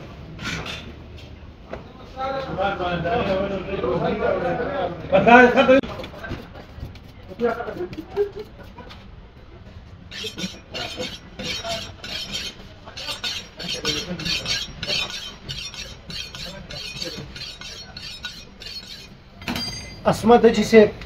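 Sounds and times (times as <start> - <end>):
cleaver scraping on sharpening steel: 10.1 - 20.0.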